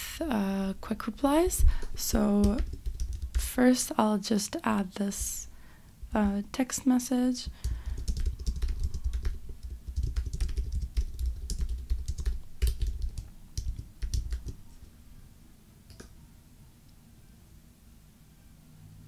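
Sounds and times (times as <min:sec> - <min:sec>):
keyboard typing: 0:01.7 - 0:03.5, 0:07.5 - 0:14.9, 0:15.9 - 0:16.2.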